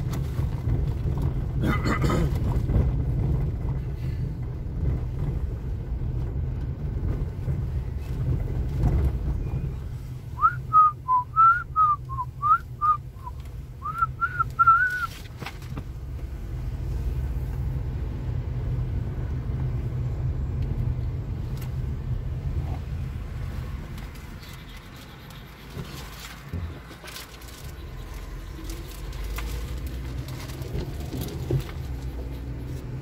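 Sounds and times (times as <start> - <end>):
car driving rumble: 0.0 - 33.0
person whistling a tune: 10.4 - 15.1.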